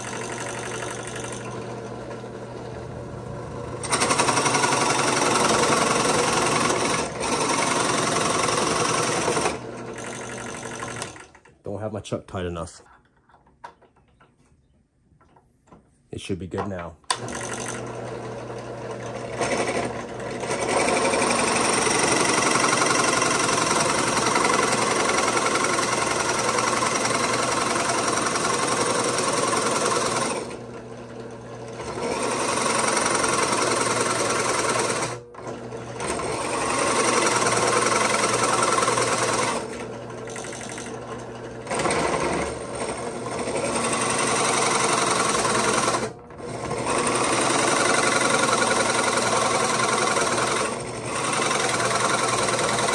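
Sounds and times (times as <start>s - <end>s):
drill press boring through wood: 0.0s - 11.4s, 17.1s - 52.9s.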